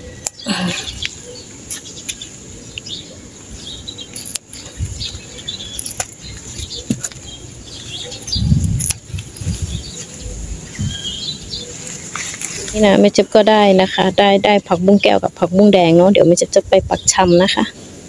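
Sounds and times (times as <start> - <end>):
leaves and vines rustling: 0.0 - 18.0
stems snapping: 0.2 - 2.9, 4.0 - 7.4, 8.6 - 10.1, 11.8 - 12.9.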